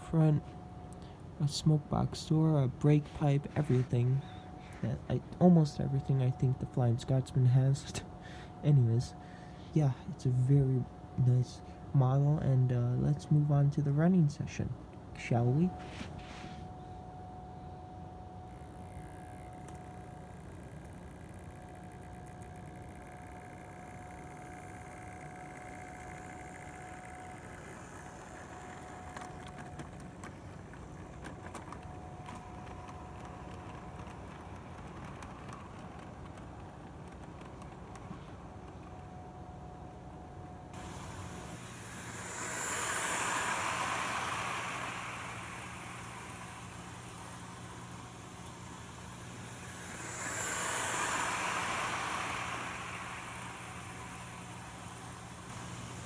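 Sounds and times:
model train motor hum: 17.9s - 56.0s
wheels clicking on rails: 17.9s - 56.0s.

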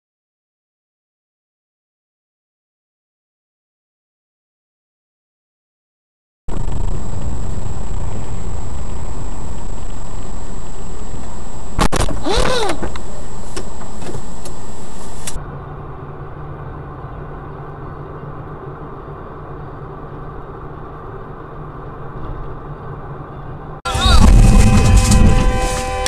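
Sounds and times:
engine and road hum: 6.5s - 26.0s
loud steady driving noise: 6.5s - 26.0s.

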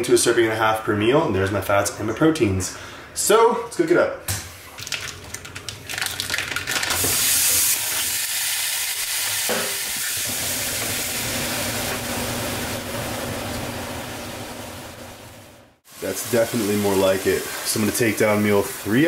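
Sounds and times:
ground beef sizzling in a pan: 7.0s - 12.8s, 15.8s - 19.0s.

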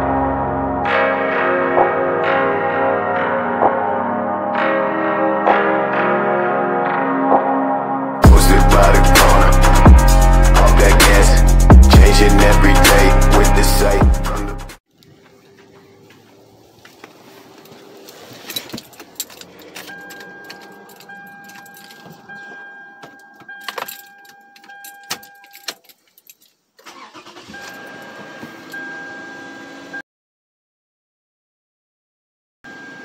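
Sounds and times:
keys jangling at ignition: 17.6s - 28.9s.

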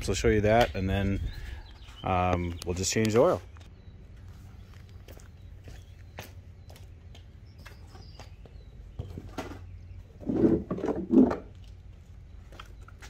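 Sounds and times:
light footsteps on concrete: 1.7s - 9.3s
hollow plastic ramps clunking: 9.0s - 11.6s.

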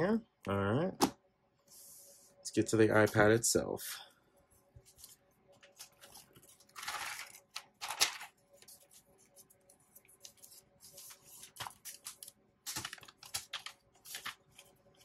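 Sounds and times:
paper packaging rustling: 4.8s - 15.0s.

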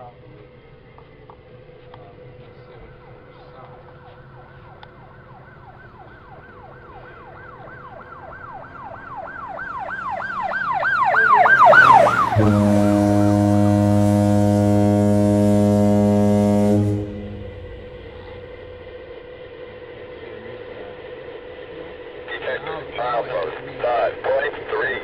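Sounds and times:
siren yelping: 4.4s - 19.2s
multi-tone locomotive horn: 11.2s - 19.2s.

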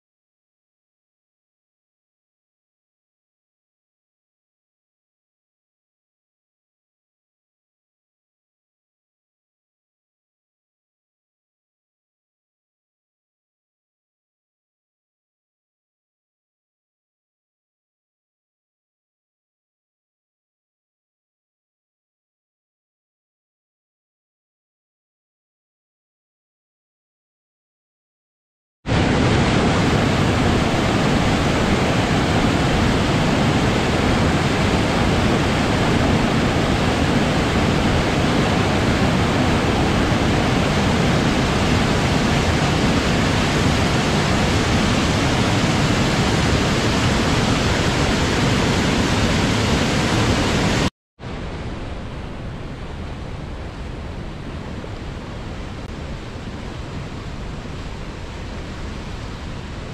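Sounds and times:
water rushing: 28.9s - 59.9s.

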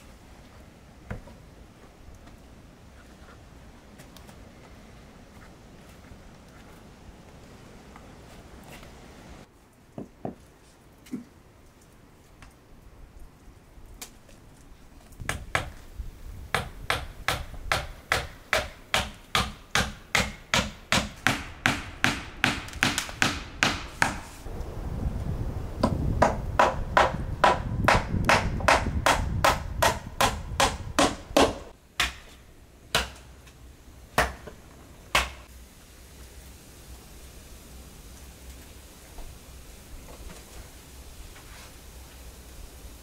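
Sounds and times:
hammer driving nails into wood: 16.6s - 24.3s, 26.2s - 32.3s.

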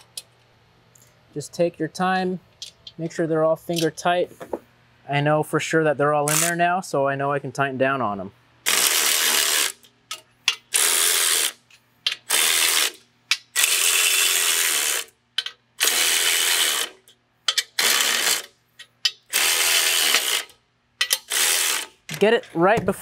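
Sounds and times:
electric ratchet running: 6.3s - 6.6s, 8.6s - 9.9s, 10.7s - 11.6s, 12.2s - 15.2s, 15.8s - 18.6s, 19.2s - 22.0s
ratchet clicks: 6.3s - 6.6s, 8.7s - 22.3s.

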